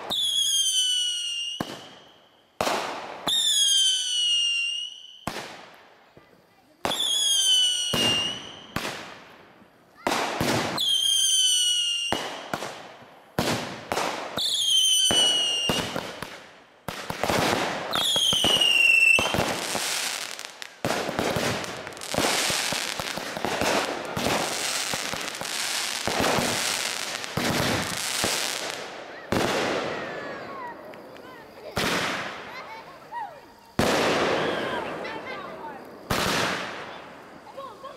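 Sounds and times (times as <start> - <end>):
firework whistles falling in pitch: 0.0 - 2.5, 3.2 - 5.4, 6.9 - 8.8, 10.7 - 12.6, 14.4 - 16.0, 17.9 - 20.5
firework bangs and crackling: 0.0 - 37.9.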